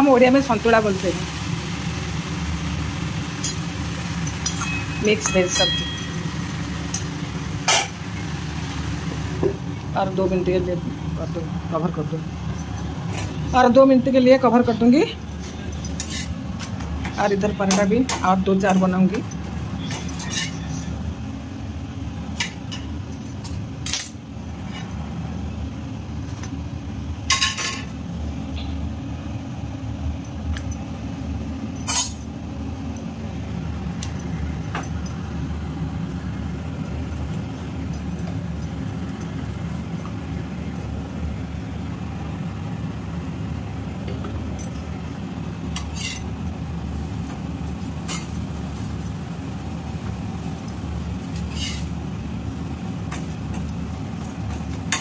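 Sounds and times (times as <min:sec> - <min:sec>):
steel utensils clinking on metal: 0:04.2 - 0:08.0, 0:14.6 - 0:16.8, 0:17.4 - 0:20.9, 0:27.3 - 0:28.0, 0:31.8 - 0:32.3, 0:44.4 - 0:49.2, 0:50.7 - 0:51.9, 0:52.7 - 0:55.0.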